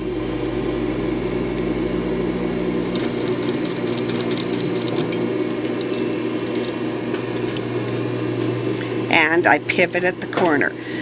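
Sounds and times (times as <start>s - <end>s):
sewing machine running: 2.8s - 7.6s.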